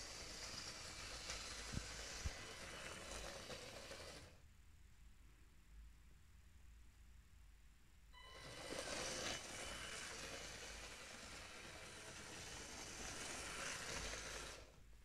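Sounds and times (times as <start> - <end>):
toy train whirring rattle: 0.0 - 4.4, 8.3 - 14.8.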